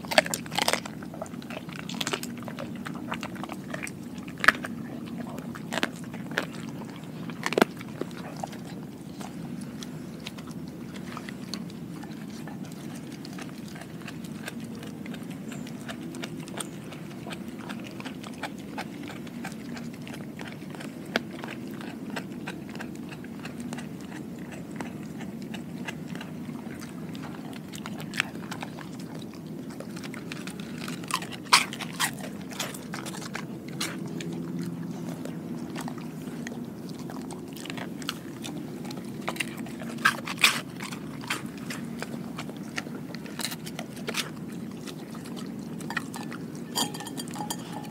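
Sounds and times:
dog chewing food: 0:00.0 - 0:47.9
clicks on glass bowl: 0:45.9 - 0:47.9.

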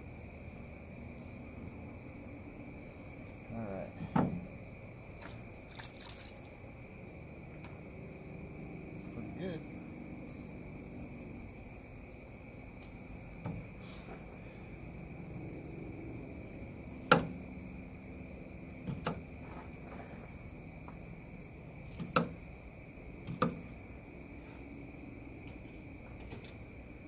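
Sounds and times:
crickets chirring: 0:00.0 - 0:27.0
knife knocking on cutting board: 0:04.1 - 0:04.4.

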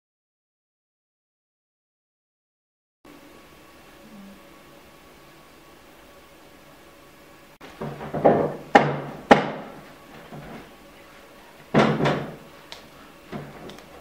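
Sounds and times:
loud knocks: 0:07.8 - 0:10.6, 0:11.7 - 0:12.4.

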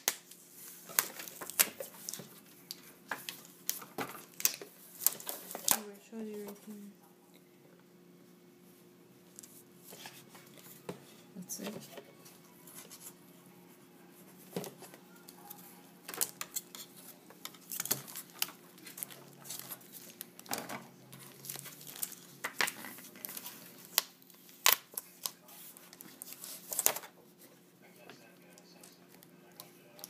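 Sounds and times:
faint steady hum: 0:00.0 - 0:30.0
packaging clicks and rustles: 0:14.6 - 0:27.1.

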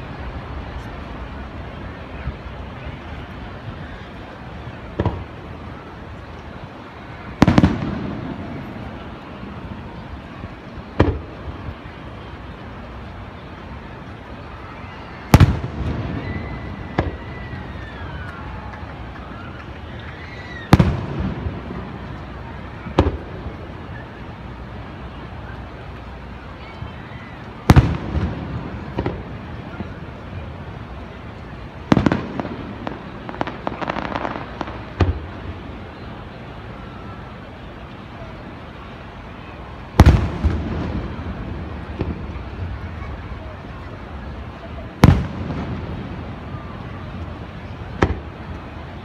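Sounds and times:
distant firework bangs: 0:04.9 - 0:05.5, 0:07.3 - 0:10.0, 0:10.9 - 0:11.5, 0:15.3 - 0:23.7, 0:27.6 - 0:30.6, 0:31.8 - 0:35.8, 0:39.9 - 0:43.3, 0:44.8 - 0:48.8.

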